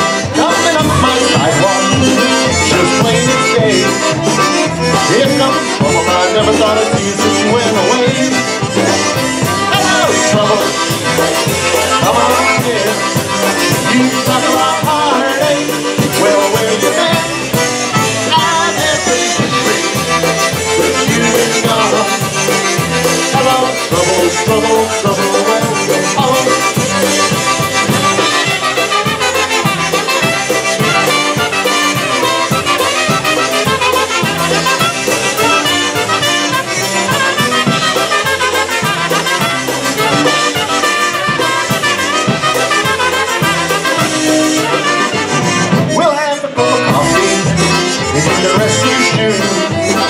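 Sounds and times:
drum kit steady beat: 0.0 - 46.2, 46.8 - 50.0
accordion: 0.0 - 50.0
polka band playing: 0.0 - 50.0
trumpets and saxophone melody: 0.0 - 50.0.

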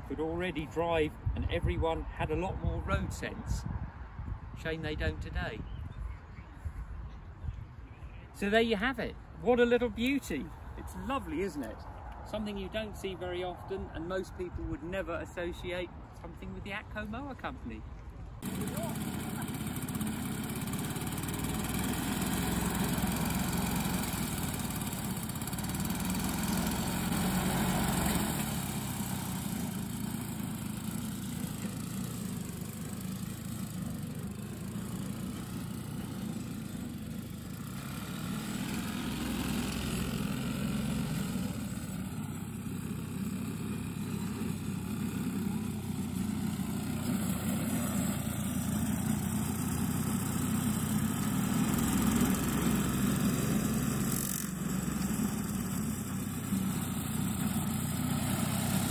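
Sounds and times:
lawnmower running: 18.4 - 58.9.

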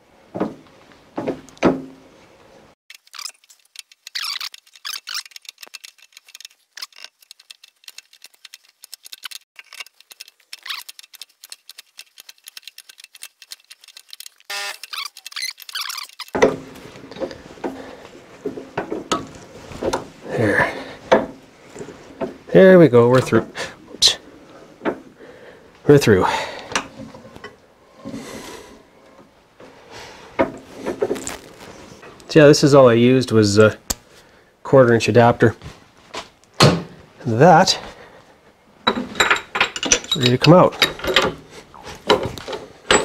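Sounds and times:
small metal clicks and ticks: 2.9 - 16.4.

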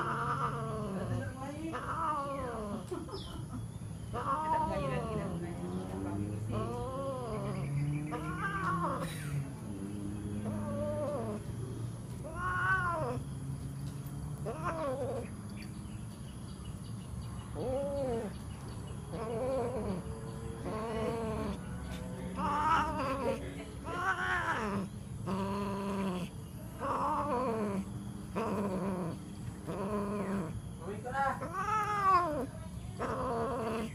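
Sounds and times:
cats yowling: 0.0 - 3.0, 4.1 - 5.4, 6.5 - 9.2, 10.3 - 13.4, 14.4 - 15.5, 17.5 - 18.4, 19.0 - 33.9.

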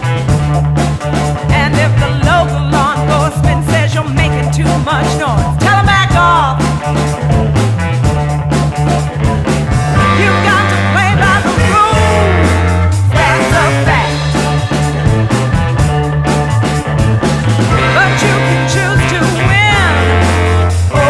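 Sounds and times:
soul funk band music: 0.0 - 21.0.

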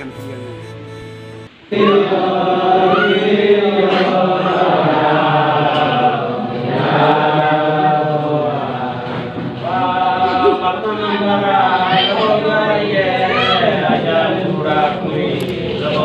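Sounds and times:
men singing unaccompanied: 1.7 - 16.0.

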